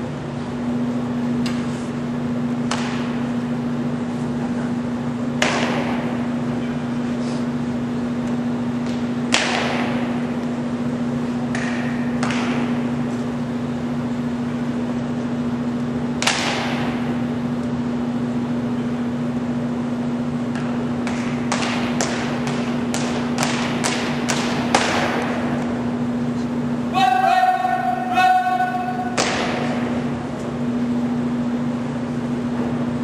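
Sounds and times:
steady hum: 0.0 - 33.0
echoing foot stamps: 26.9 - 30.4.

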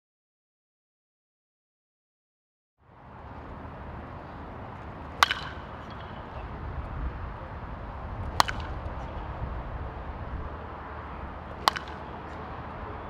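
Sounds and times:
bat hitting ball: 4.2 - 13.0.

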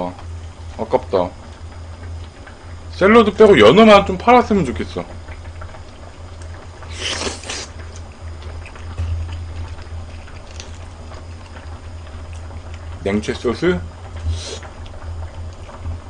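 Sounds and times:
steady low hum: 0.0 - 16.0
person chewing: 6.4 - 12.9
sucking slurp: 6.8 - 11.2, 14.2 - 14.8.

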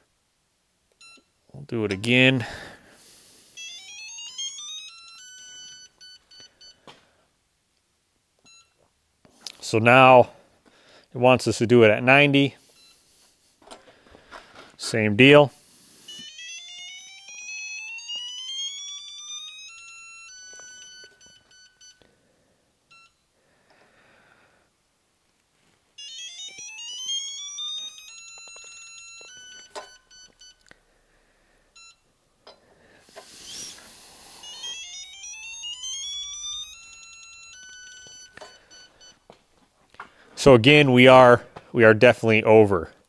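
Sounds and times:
electronic beeper rising tone: 3.6 - 6.7, 16.0 - 22.0, 33.3 - 39.2
fast beeps on one pitch: 3.6 - 6.8, 26.0 - 30.6, 33.3 - 39.2
rustling: 25.3 - 29.9.

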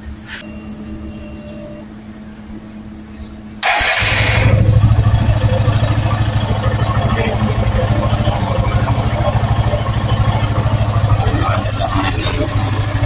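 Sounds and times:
motorcycle engine idling: 0.5 - 13.0
electric starter cranking: 3.6 - 13.0.

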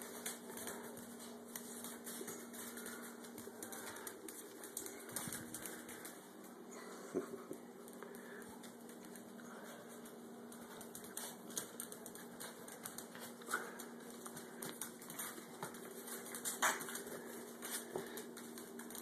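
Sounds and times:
puppy claws clicking on tiles: 0.0 - 6.5, 7.2 - 19.0.

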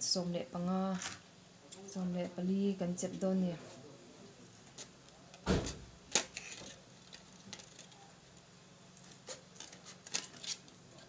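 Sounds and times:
scissors cutting plastic: 6.1 - 8.0, 9.2 - 10.8.

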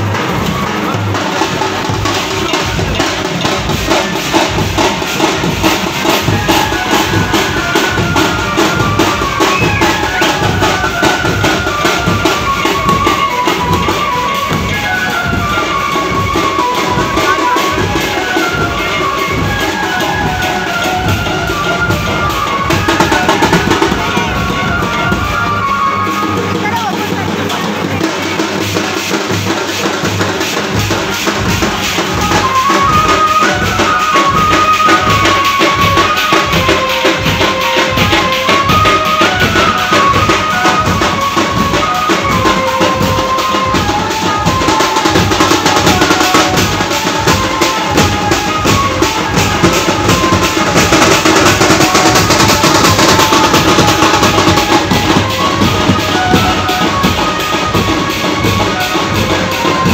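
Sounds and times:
large drums beating: 0.0 - 59.9
street band playing festival music: 0.0 - 59.9
keyboard melody: 6.4 - 27.8.

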